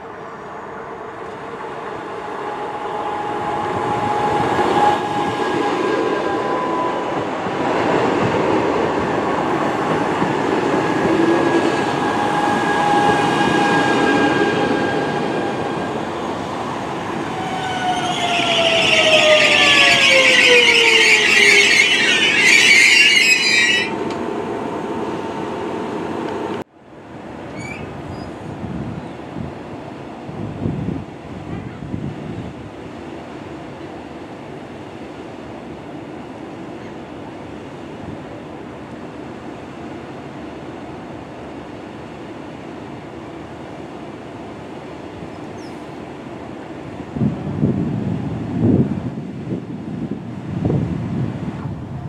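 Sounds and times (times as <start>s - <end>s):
whining tones falling in pitch: 17.3s - 24.2s
shrill brake squeal: 17.6s - 24.0s, 27.6s - 28.3s.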